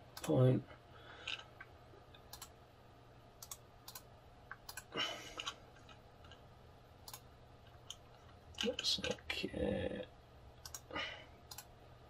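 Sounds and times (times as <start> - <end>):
low steady hum: 0.0 - 12.0
mouse and keyboard clicks: 2.2 - 2.5, 3.4 - 6.4, 10.6 - 10.9, 11.5 - 11.7.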